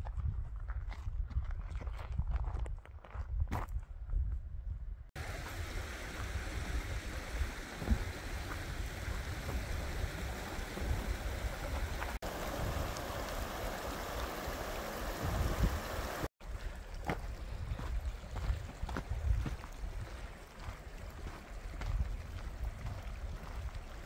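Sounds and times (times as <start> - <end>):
stream running over stones: 5.2 - 24.0.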